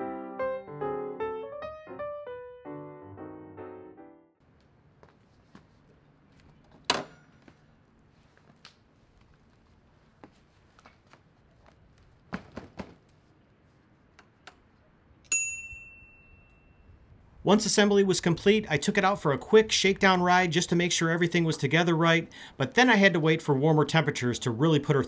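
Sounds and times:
bell-like ding: 15.3s - 17.0s.

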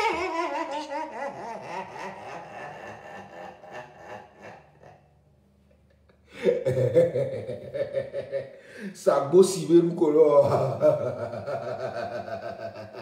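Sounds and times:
man laughing heartily: 0.0s - 5.0s, 6.3s - 8.9s, 10.4s - 13.0s.

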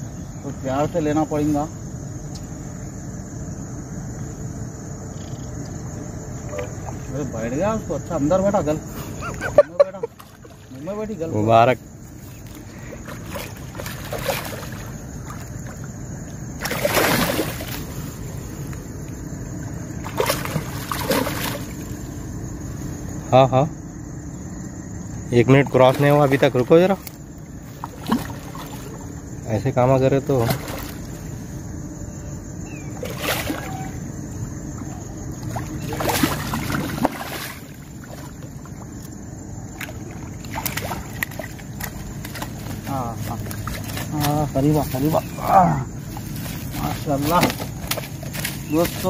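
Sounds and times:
fish splashing in water: 12.3s - 18.6s, 19.6s - 22.1s, 25.9s - 29.2s, 30.4s - 31.2s, 32.9s - 44.4s, 46.1s - 49.0s.

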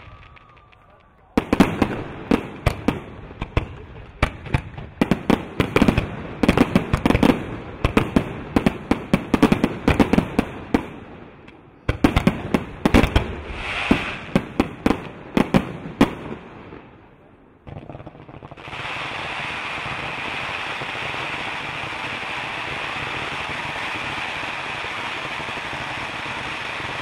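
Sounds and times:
fireworks hissing crackle: 0.0s - 8.0s, 12.8s - 16.2s, 17.8s - 27.0s
fireworks bursting: 0.0s - 27.0s.

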